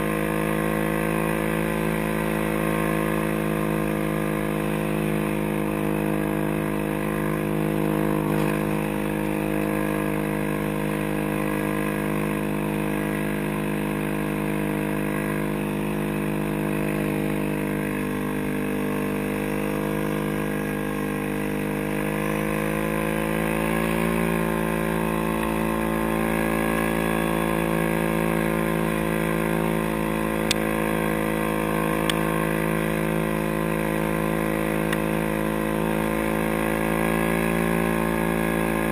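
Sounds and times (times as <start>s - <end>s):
quad bike engine running: 0.0s - 38.9s.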